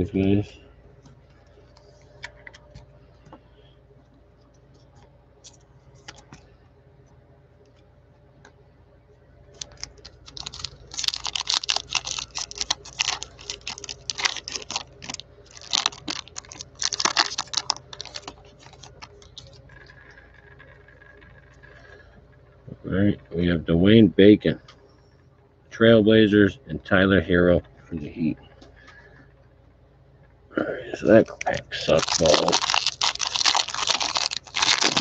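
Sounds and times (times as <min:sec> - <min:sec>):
plastic wrapper crinkling: 0:09.6 - 0:19.9, 0:31.5 - 0:35.0.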